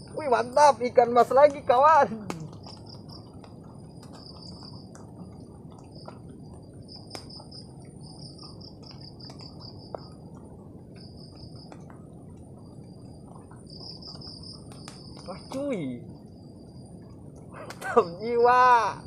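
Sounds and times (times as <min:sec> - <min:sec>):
insect chirping: 0:00.0 - 0:19.0
outdoor background hiss: 0:00.0 - 0:19.0
faint clicks: 0:02.3 - 0:15.8.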